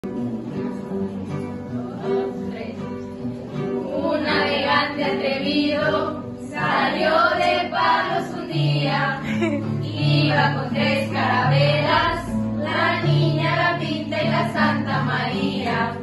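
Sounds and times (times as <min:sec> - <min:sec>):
children's song with instruments: 0:00.1 - 0:16.0
group of voices singing: 0:03.6 - 0:16.0.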